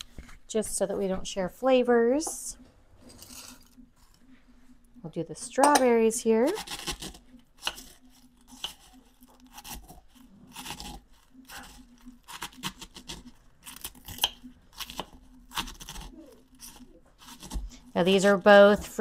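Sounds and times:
mortar and pestle crunching: 0:06.5 - 0:19.0.

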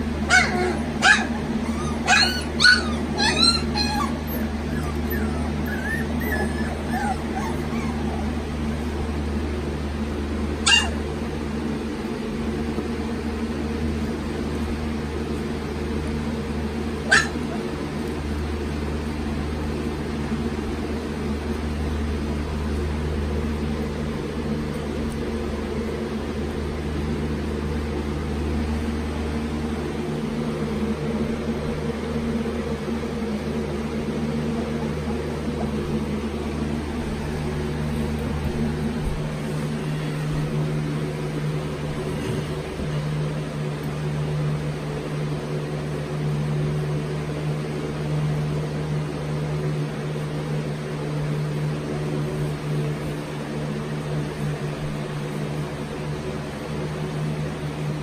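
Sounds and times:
steady low hum: 0:00.0 - 0:58.0
puppies squeaking: 0:00.3 - 0:08.9, 0:10.6 - 0:11.0, 0:17.0 - 0:17.7, 0:34.4 - 0:36.3.

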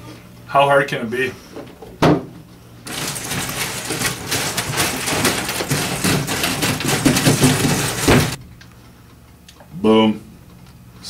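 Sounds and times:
clatter of puzzle pieces: 0:02.9 - 0:08.4.

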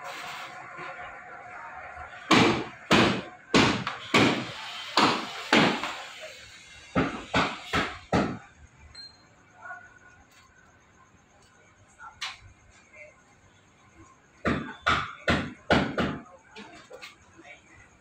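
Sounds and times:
loud sharp bangs: 0:02.2 - 0:06.2, 0:06.9 - 0:08.6.

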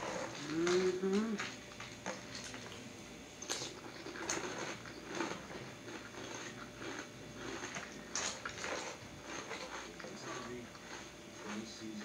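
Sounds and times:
chewing crunchy cereal: 0:00.0 - 0:12.0.

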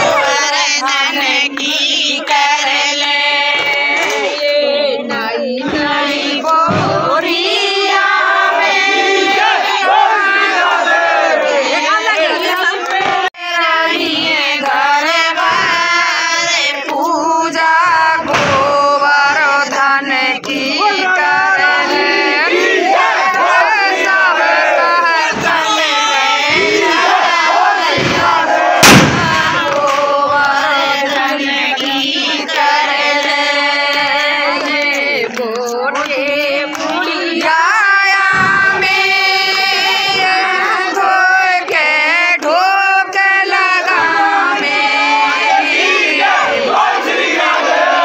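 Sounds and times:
crowd singing together: 0:00.0 - 0:48.0
sharp bang: 0:18.2 - 0:18.8, 0:27.8 - 0:30.0.

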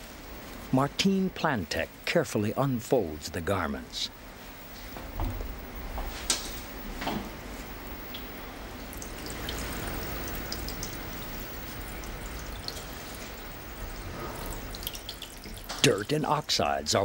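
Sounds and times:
water running and dripping: 0:04.2 - 0:17.0
cloth being washed: 0:08.6 - 0:16.3.

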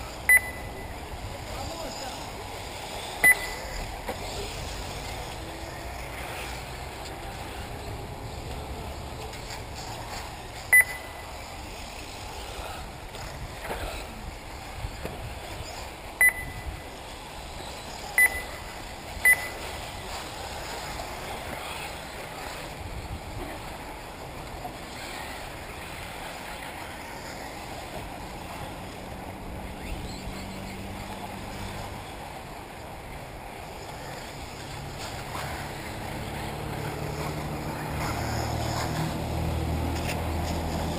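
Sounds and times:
outdoor background noise: 0:00.0 - 0:40.9
high-pitched electronic beeps: 0:00.2 - 0:01.0, 0:03.2 - 0:03.9, 0:10.7 - 0:11.4, 0:16.2 - 0:16.8, 0:18.1 - 0:19.8.

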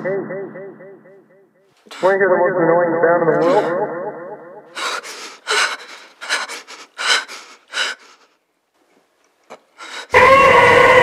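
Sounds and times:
woman breathing heavily: 0:03.4 - 0:03.8, 0:04.7 - 0:08.4, 0:09.7 - 0:10.2.

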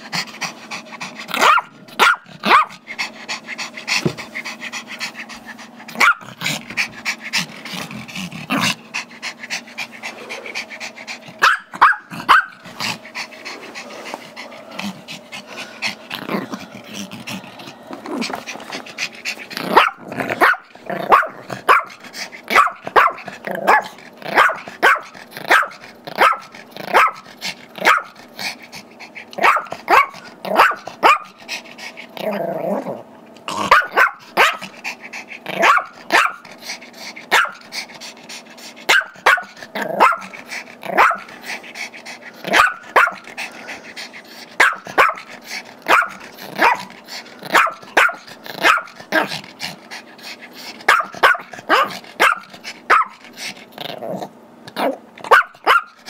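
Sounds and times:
small dog barking: 0:01.4 - 0:02.7, 0:06.0 - 0:06.2, 0:11.4 - 0:12.6, 0:19.7 - 0:27.2, 0:27.8 - 0:28.2, 0:29.4 - 0:31.3, 0:33.6 - 0:34.6, 0:35.6 - 0:36.4, 0:37.3 - 0:37.6, 0:38.9 - 0:40.3, 0:41.0 - 0:41.3, 0:42.5 - 0:43.2, 0:44.6 - 0:45.3, 0:45.9 - 0:46.9, 0:47.5 - 0:48.9, 0:50.9 - 0:53.2, 0:55.3 - 0:56.0.

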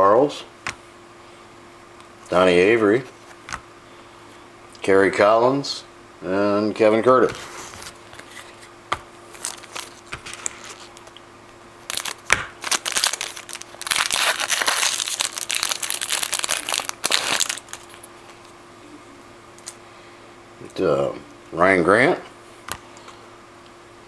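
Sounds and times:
wrapper tearing and crinkling: 0:09.3 - 0:11.1, 0:11.9 - 0:18.1.

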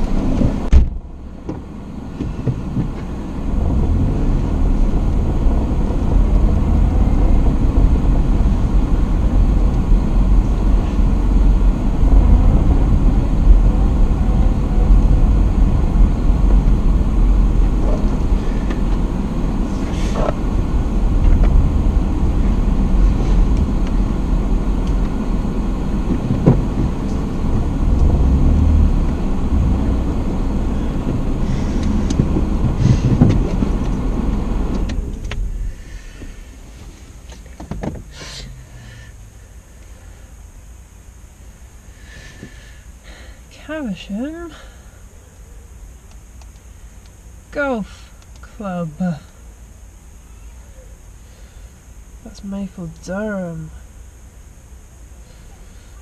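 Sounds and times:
car door shutting: 0:00.0 - 0:03.1, 0:26.0 - 0:27.3, 0:31.0 - 0:35.5, 0:37.3 - 0:38.4
car engine and tyres rumbling: 0:00.0 - 0:56.0.

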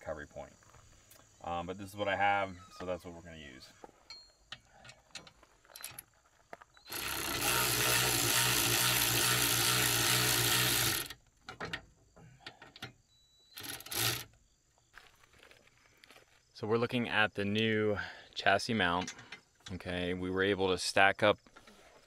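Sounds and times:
power tool motor running: 0:06.9 - 0:11.2, 0:13.6 - 0:14.3.

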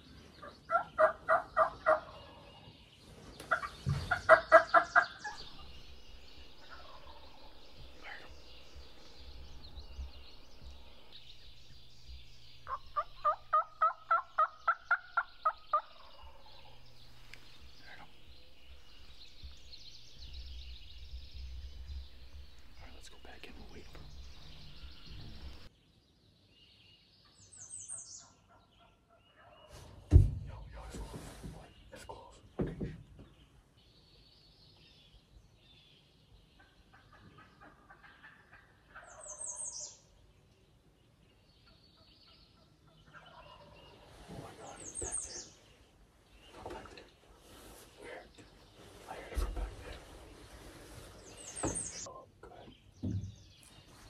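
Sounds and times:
turkey yelping: 0:00.7 - 0:02.2, 0:12.6 - 0:16.8
turkey gobbling: 0:00.7 - 0:02.3, 0:03.5 - 0:05.7, 0:06.6 - 0:08.3, 0:12.6 - 0:16.9, 0:36.6 - 0:39.5.

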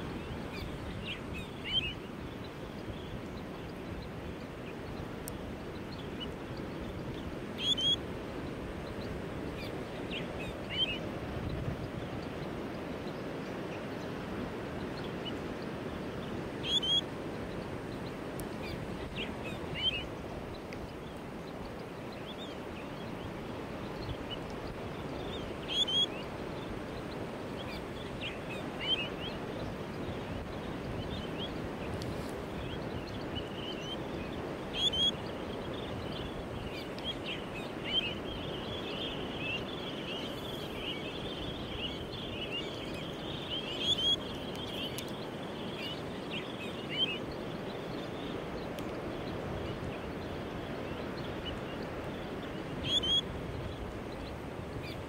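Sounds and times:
high chirping bird calls: 0:07.6 - 0:08.0, 0:16.6 - 0:17.0, 0:32.6 - 0:48.5.

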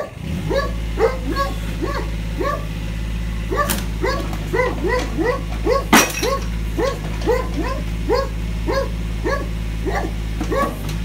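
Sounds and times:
dog barking: 0:00.0 - 0:02.8, 0:03.4 - 0:10.9
excavator engine humming: 0:00.0 - 0:11.0
ceramic toilet cracking: 0:04.3 - 0:07.3.

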